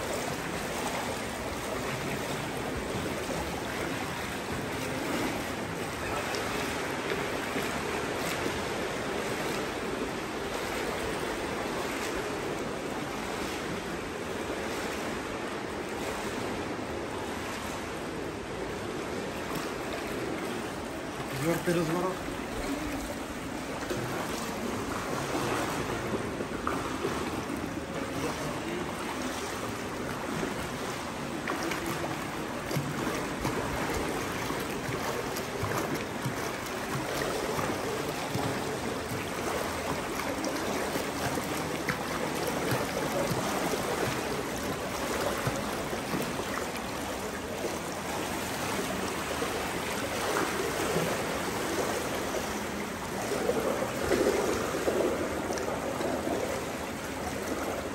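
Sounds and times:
pool water splashing: 0.0 - 57.9.

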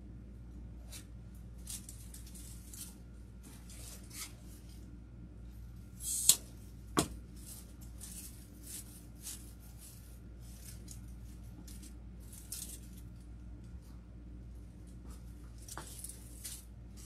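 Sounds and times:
artificial greenery rustling: 0.8 - 13.9.

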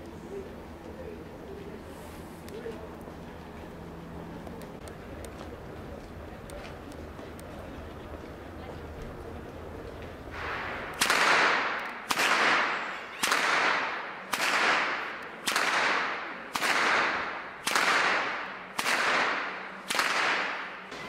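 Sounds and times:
whip cracking with echo: 10.4 - 20.9.

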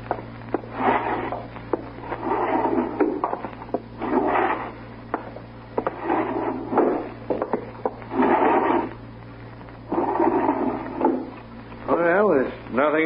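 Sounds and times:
wooden drawers scraping: 5.8 - 8.9, 9.9 - 11.4.

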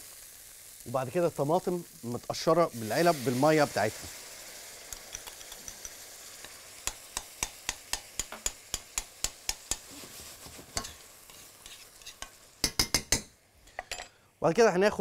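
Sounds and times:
onions and tomatoes sizzling in a pan: 0.0 - 15.0
metal spoon stirring in a pan: 4.8 - 14.1
spoon clicking against a pan: 4.9 - 9.8, 12.2 - 13.3.

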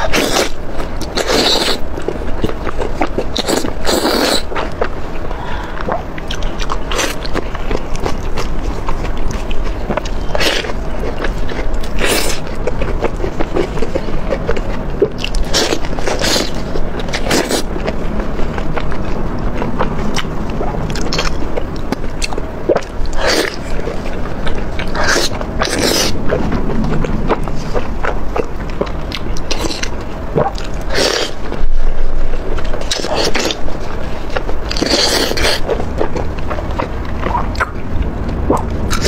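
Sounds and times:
person chewing food: 0.0 - 39.0
wet mouth sounds: 3.0 - 17.7.

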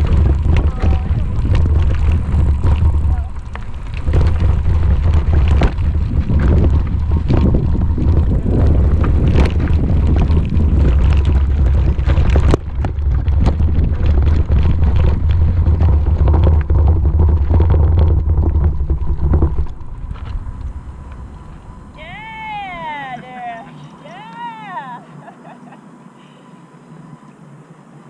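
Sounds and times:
bicycle knocks and rattles: 0.0 - 21.8
wind rumble on microphone: 0.0 - 23.2.

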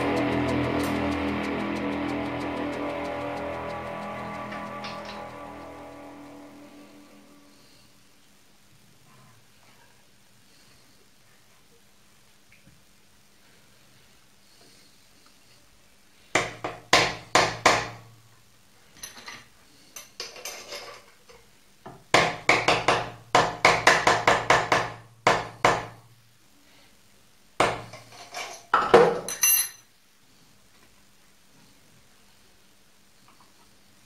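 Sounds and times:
hammer tapping metal workpiece: 16.4 - 18.0, 21.9 - 26.0.

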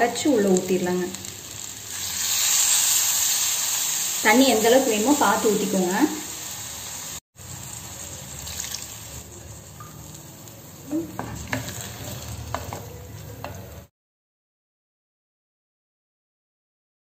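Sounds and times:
low sizzle: 0.0 - 13.9
spatula stirring in a pot: 11.0 - 13.9.

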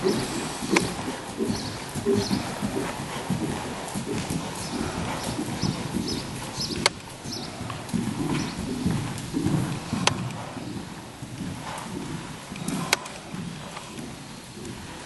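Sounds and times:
horse hoofbeats trotting: 0.0 - 15.0.

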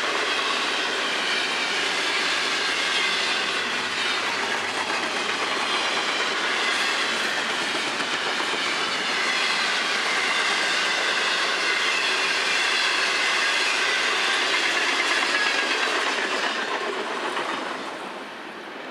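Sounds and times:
train wheels clattering on rails: 0.0 - 18.9.

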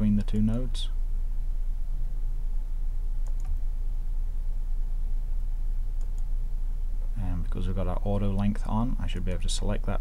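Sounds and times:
steady low hum: 0.0 - 10.0
computer mouse clicks: 3.2 - 3.6, 6.0 - 6.3.

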